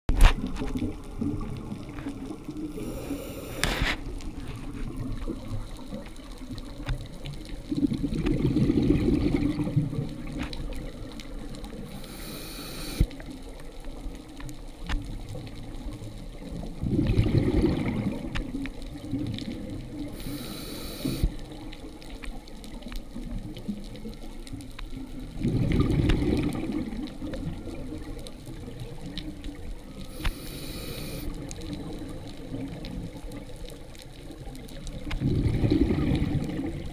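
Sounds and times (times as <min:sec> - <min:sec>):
exhaled air bubbling underwater: 0:00.1 - 0:36.9
underwater hush: 0:01.8 - 0:04.8, 0:11.7 - 0:13.1, 0:20.0 - 0:21.6, 0:29.9 - 0:32.8
regulator inhalation hiss: 0:02.7 - 0:03.9, 0:11.9 - 0:13.0, 0:20.2 - 0:21.4, 0:30.1 - 0:31.3.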